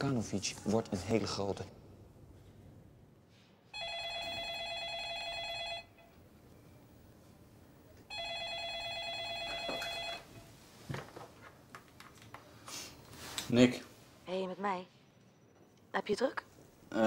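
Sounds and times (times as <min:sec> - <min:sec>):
desk phone ringing with a trill: 0:03.7 - 0:06.1, 0:08.1 - 0:10.4.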